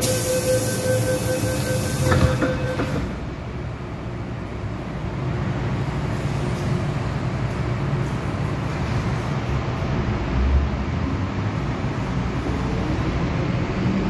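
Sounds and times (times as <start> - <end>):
train motors and wheels rumbling: 0.0 - 14.0.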